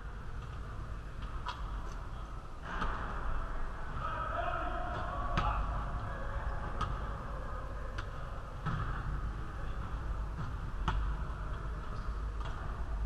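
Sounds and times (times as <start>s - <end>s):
basketball bouncing on gym floor: 8.6s - 12.8s.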